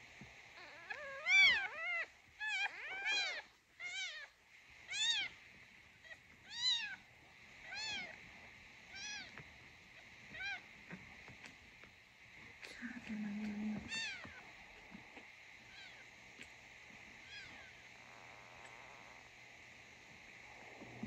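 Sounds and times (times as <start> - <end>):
kitten mewing: 12.8 - 14.5, 17.2 - 17.8.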